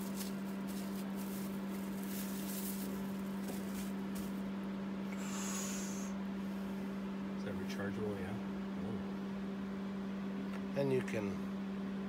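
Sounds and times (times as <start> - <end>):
plastic packaging crinkling: 0.0 - 4.4
steady low hum: 0.0 - 12.0
short high hiss: 5.1 - 6.2.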